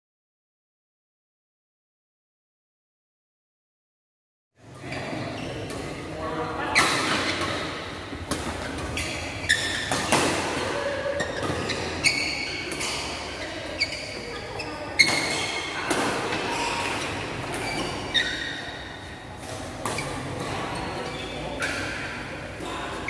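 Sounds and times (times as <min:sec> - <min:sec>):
shoes squeaking on court floor: 0:04.6 - 0:06.1, 0:06.7 - 0:23.0
racket hitting shuttlecock: 0:06.7 - 0:14.2, 0:15.0 - 0:23.0.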